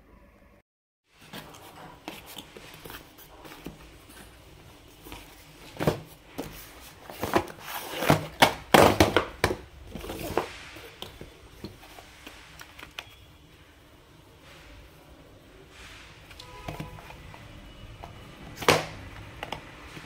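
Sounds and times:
cardboard rustling: 1.2 - 13.1
small boxes knocking on a table: 5.7 - 10.5.

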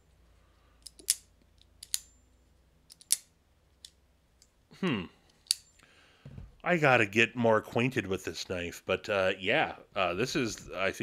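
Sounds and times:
folding knife metallic clicks: 0.8 - 2.1, 2.9 - 4.5.

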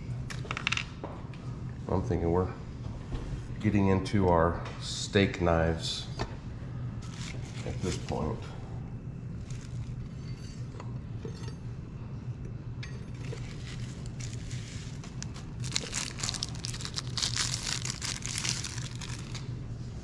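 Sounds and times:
low hum: 0.0 - 20.0
plastic packaging crinkling: 13.2 - 19.5.

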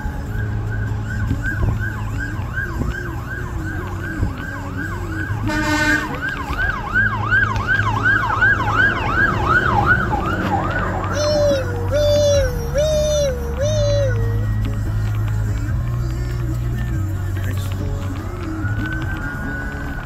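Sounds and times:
fire engine siren yelping: 0.0 - 20.0
short horn blast: 5.4 - 6.2.

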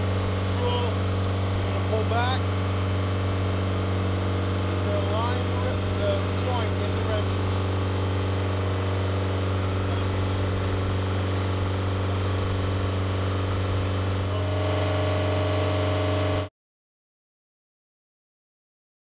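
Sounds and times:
drilling rig engine humming: 0.0 - 16.5
higher steady tone: 0.0 - 16.5.

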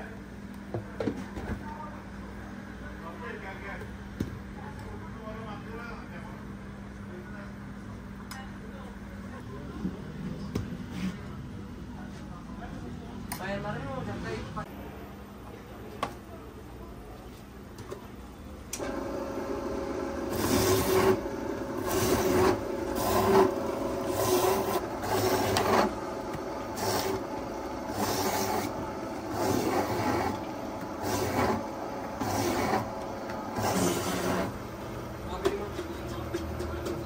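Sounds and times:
steady hum: 18.2 - 36.3.

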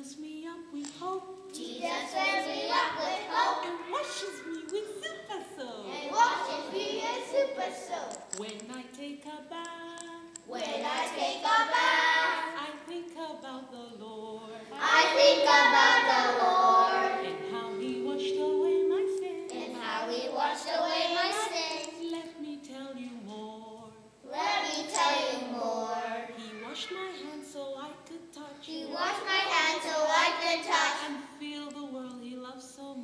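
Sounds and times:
children singing into microphone: 1.5 - 4.8, 5.9 - 8.7, 10.0 - 12.9, 14.3 - 22.4, 24.2 - 27.6, 28.6 - 31.2.

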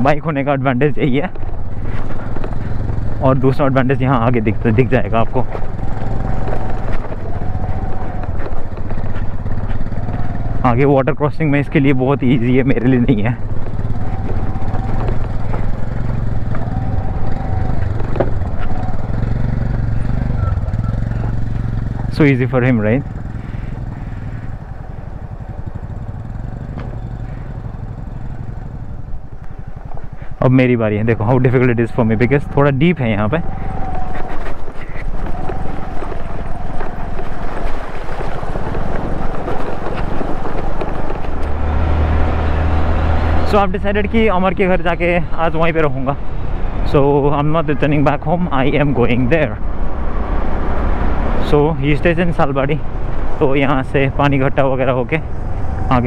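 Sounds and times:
motorcycle engine running: 0.0 - 56.0
stones knocking under wheels: 4.3 - 10.6, 12.4 - 20.4, 33.7 - 42.6
wind buffeting microphone: 31.0 - 43.4.

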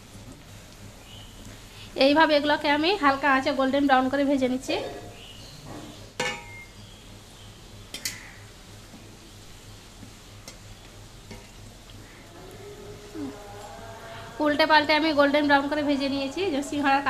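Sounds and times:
food deep-frying in oil: 0.0 - 12.6
metal spatula knocking pan: 6.2 - 6.7.

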